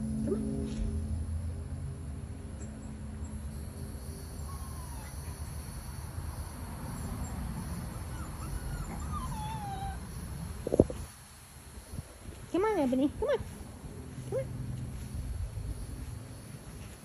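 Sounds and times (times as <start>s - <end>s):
puppies whimpering: 4.3s - 5.7s, 7.6s - 10.3s.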